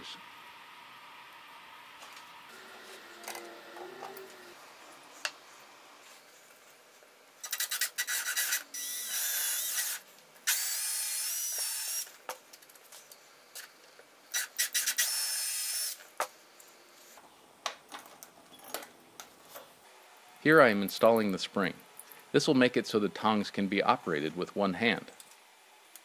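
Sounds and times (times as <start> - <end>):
drill boring into wood: 8.0 - 12.1.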